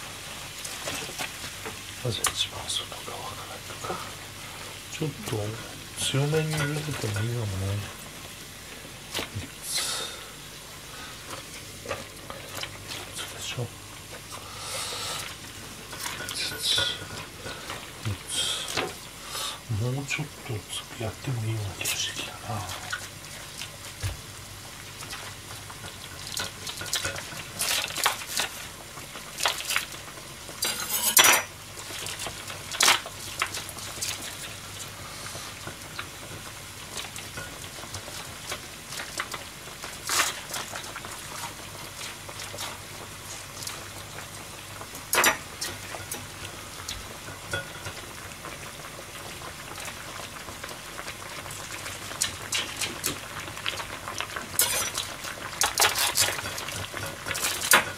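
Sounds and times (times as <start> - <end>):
water boiling in pan: 0.0 - 57.9
utensil clinking against pan: 30.6 - 31.5.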